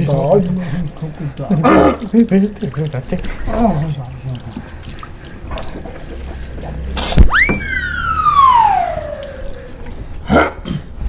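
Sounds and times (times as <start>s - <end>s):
whistle-like gliding tone: 7.2s - 9.9s.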